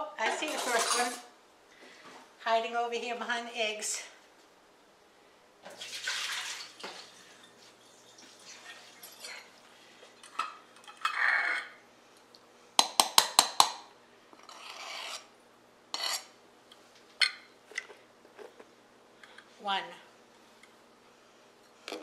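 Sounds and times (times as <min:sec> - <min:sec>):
metal utensils clinking and scraping: 0:00.3 - 0:01.3, 0:08.5 - 0:09.5.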